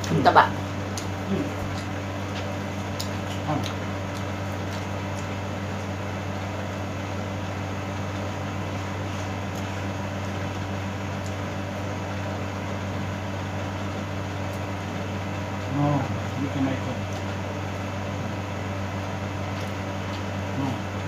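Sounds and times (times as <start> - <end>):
appliance humming: 0.0 - 21.0
faint clicks of eating: 0.9 - 5.5, 8.0 - 11.4, 14.4 - 14.7, 17.0 - 17.4, 19.0 - 21.0.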